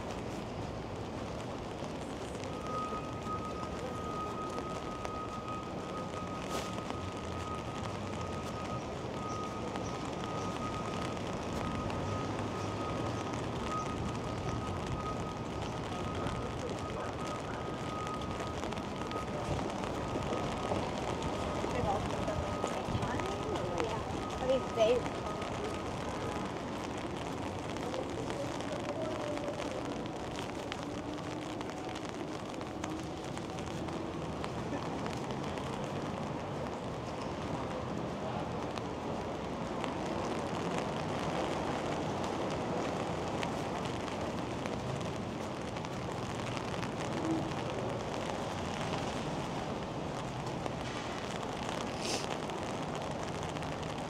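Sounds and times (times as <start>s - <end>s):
passing traffic: 0.0s - 54.0s
rain hiss: 0.0s - 54.0s
brief hiss: 51.9s - 52.3s.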